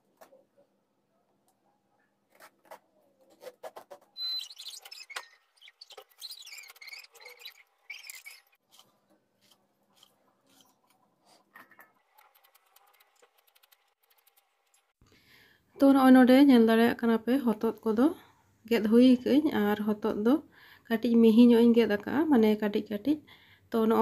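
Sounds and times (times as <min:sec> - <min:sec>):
peeler rasping on gourd: 0:04.2 - 0:11.4.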